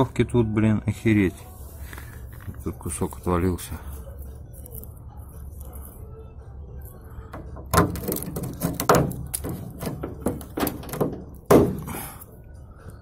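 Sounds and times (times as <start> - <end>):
body filler cracking and flaking: 7.3 - 12.2
knocks on metal: 7.4 - 11.9.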